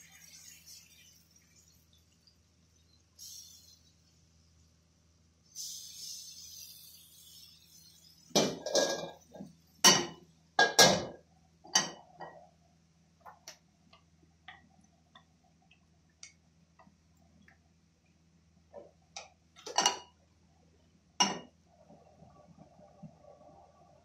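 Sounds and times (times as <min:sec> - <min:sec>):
gas stove hiss: 0:00.0 - 0:11.2.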